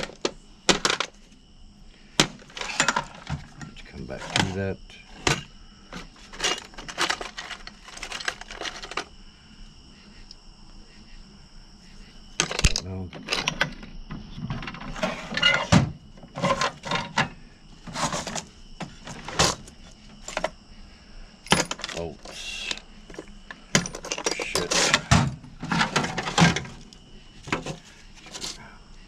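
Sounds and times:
metal tools clinking and rattling: 2.3 - 9.1, 12.4 - 13.8, 14.4 - 20.5, 21.5 - 28.6
tool chest drawer pulled out: 2.4 - 9.0, 14.4 - 20.5, 23.8 - 26.9.

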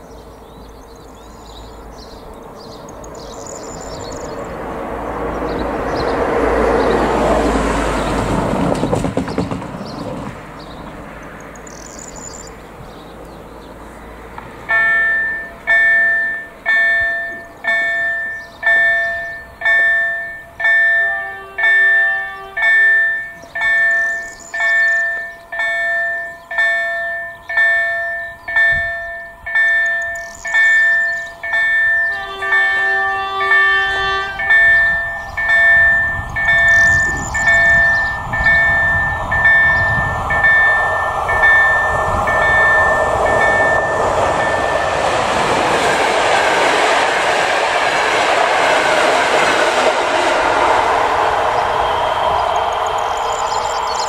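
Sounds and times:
train rumbling past: 0.0 - 54.0
level-crossing bells ringing: 14.6 - 46.0, 52.2 - 54.0
train horn: 20.8 - 23.3, 32.0 - 43.8.

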